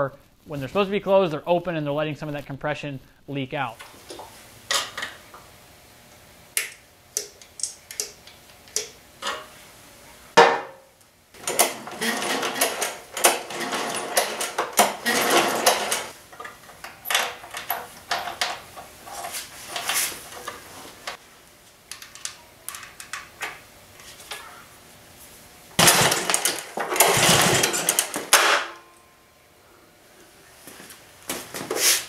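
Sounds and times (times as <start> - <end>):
engine cranking with recoil starter: 11.4 - 16.2, 25.8 - 28.3.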